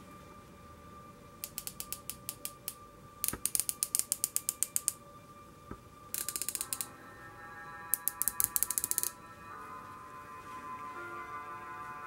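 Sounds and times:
scope turret detent clicks: 1.4s - 5.0s, 6.1s - 6.9s, 8.0s - 9.2s.

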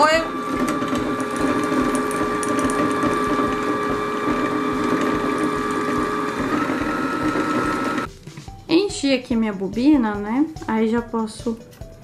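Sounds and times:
sewing machine motor whine: 0.0s - 8.1s.

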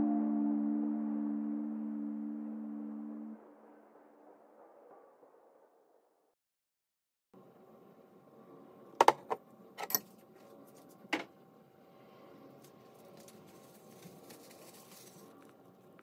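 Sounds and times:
faint steady hum: 7.4s - 16.0s.

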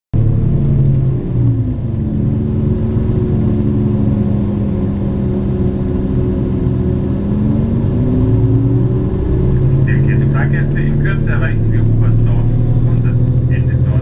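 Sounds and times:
train rumbling from inside carriage: 0.2s - 14.0s.

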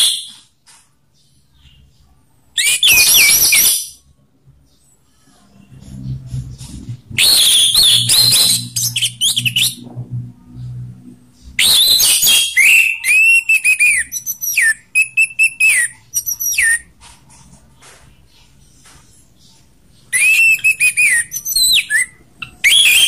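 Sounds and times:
thrush singing whistled song: 0.0s - 0.5s, 2.6s - 4.0s, 7.2s - 9.9s, 11.5s - 16.9s, 20.1s - 23.0s.

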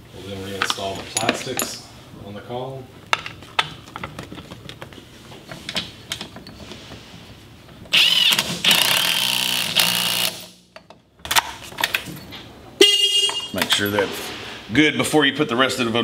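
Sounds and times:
cordless drill whirring: 7.9s - 10.4s.

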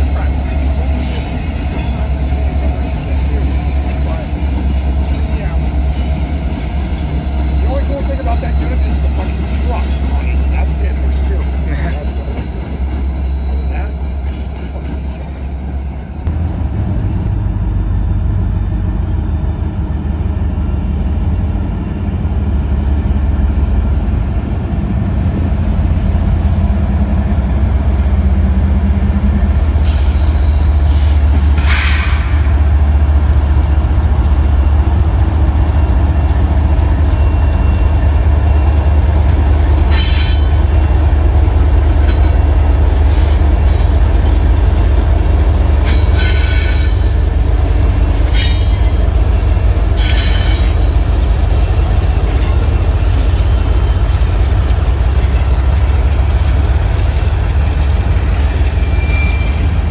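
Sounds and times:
freight train rumbling past: 0.0s - 59.9s
wheel squeal: 58.3s - 59.9s.

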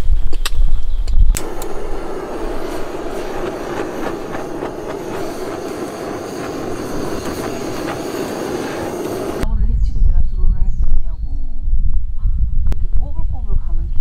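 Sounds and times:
light crackling: 1.3s - 9.4s
butane torch roaring hiss: 1.4s - 9.5s.

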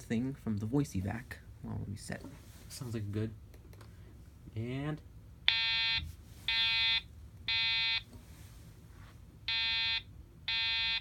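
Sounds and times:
fire alarm horn beeps: 5.5s - 8.0s, 9.5s - 11.0s.

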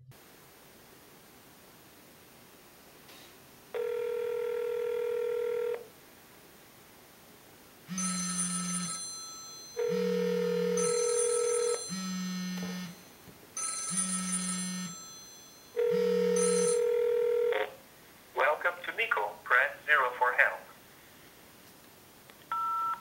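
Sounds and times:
cell phone ringing: 3.8s - 5.8s, 7.9s - 17.8s, 22.5s - 23.0s
ringback tone: 7.9s - 17.6s.

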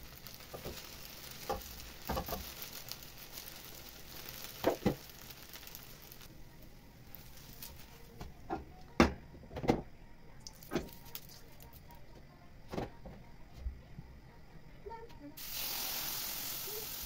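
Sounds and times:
batter sizzling in pan: 0.0s - 8.5s, 10.4s - 11.8s, 15.4s - 17.0s.

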